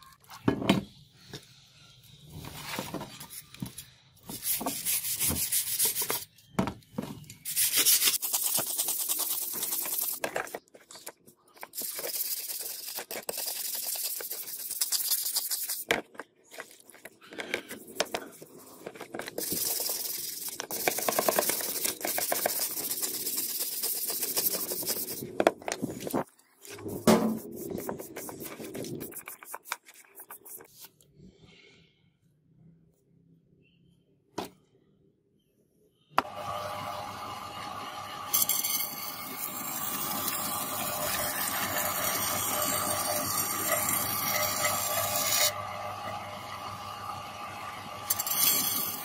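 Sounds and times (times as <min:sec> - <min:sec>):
wire brush scrubbing metal blade: 0:38.3 - 0:45.6, 0:48.0 - 0:49.0.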